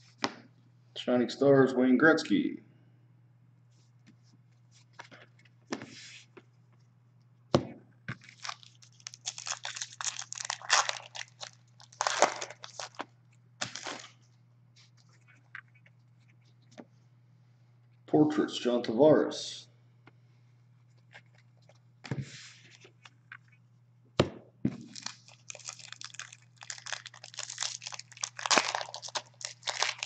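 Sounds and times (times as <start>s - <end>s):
faint low hum: 0.0s - 30.0s
plastic wrapper crinkling and tearing: 8.2s - 14.2s, 24.8s - 30.0s.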